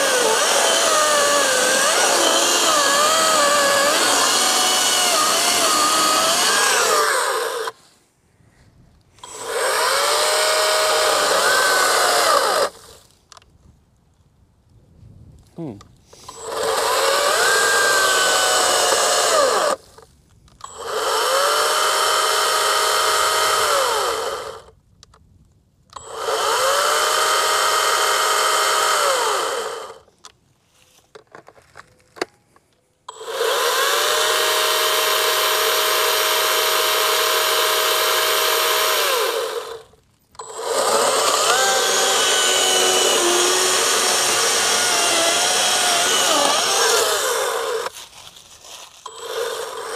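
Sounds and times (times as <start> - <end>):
battery chainsaw whining: 0.0 - 7.8, 9.2 - 13.1, 16.1 - 20.0, 20.6 - 24.7, 26.0 - 30.1, 33.1 - 48.1, 48.9 - 49.9.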